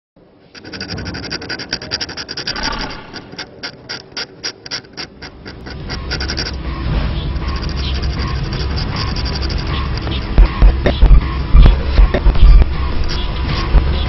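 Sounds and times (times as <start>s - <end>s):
rapid rasping clicks: 0.5s - 14.0s
low rumble: 5.6s - 14.0s.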